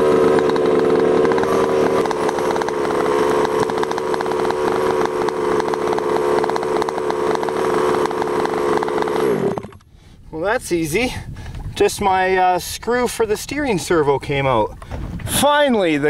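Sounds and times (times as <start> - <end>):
two-stroke engine idling: 0.0 - 9.8.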